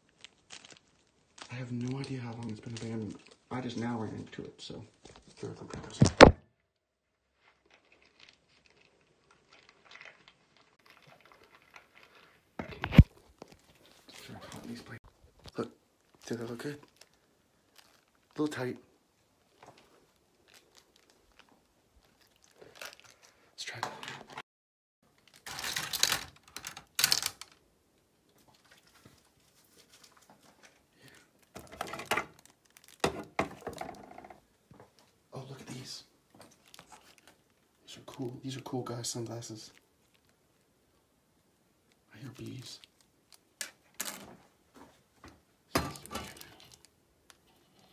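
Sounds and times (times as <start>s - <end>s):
handling rustling and clatter: 25.1s - 27.6s, 43.6s - 47.9s
eyeglass frames rustling and clicking: 25.1s - 27.7s, 28.3s - 35.2s.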